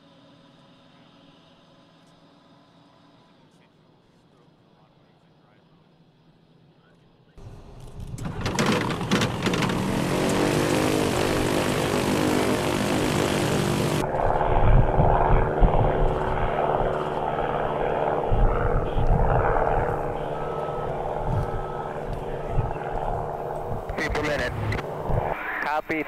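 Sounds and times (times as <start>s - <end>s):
aircraft piston engine and propeller: 0.0s - 26.0s.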